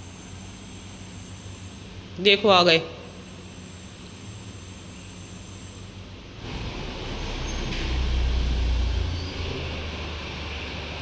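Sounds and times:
van engine rumbling: 6.0 - 11.0.

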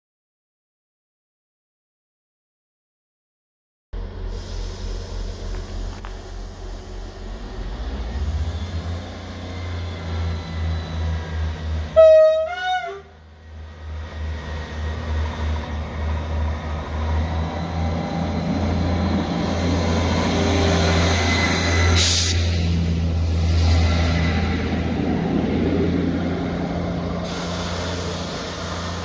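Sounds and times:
diesel engine rumble and whine: 4.0 - 29.0
train horn: 11.9 - 13.2.

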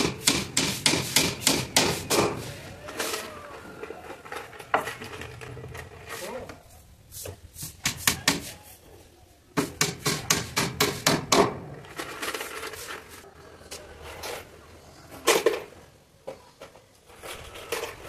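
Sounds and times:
hammer striking nails into wood: 0.0 - 2.4, 9.6 - 11.6.

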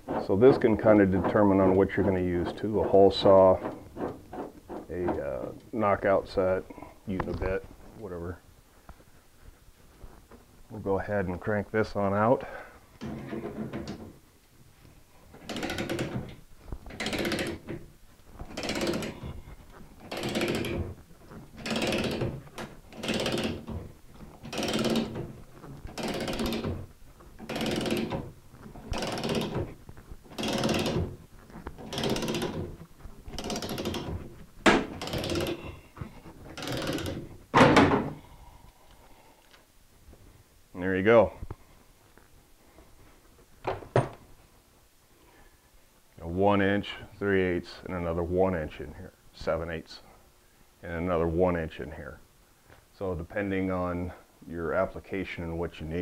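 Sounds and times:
punch grinding creak through steel: 15.4 - 17.8, 18.4 - 38.2.

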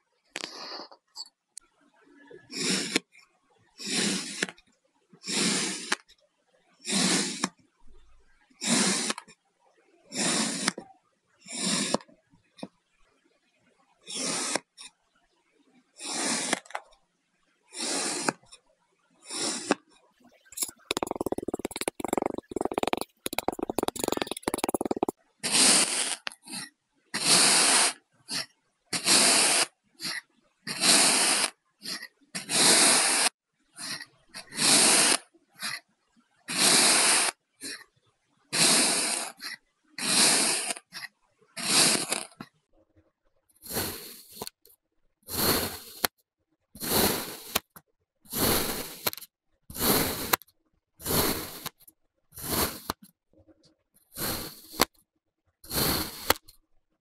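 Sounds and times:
sand being cut scraping: 20.6 - 25.1, 43.7 - 44.5, 45.3 - 46.1, 46.8 - 47.6, 48.3 - 50.4, 51.0 - 51.8, 52.4 - 53.0, 54.2 - 54.9, 55.7 - 56.5.

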